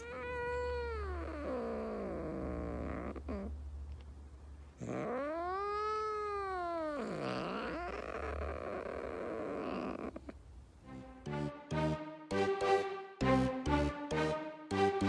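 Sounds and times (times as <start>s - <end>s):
cat moaning: 0.0s - 3.6s, 4.8s - 10.4s
cat meowing: 4.8s - 10.3s
music: 10.8s - 15.0s.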